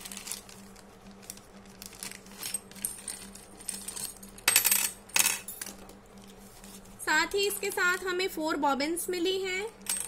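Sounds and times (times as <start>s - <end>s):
plastic packets crinkling: 0.0s - 2.4s.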